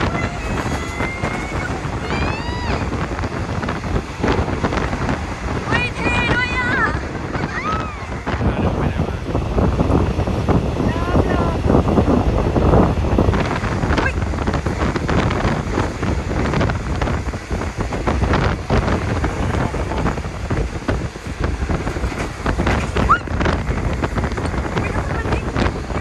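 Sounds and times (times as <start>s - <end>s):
wind buffeting microphone: 0.0s - 26.0s.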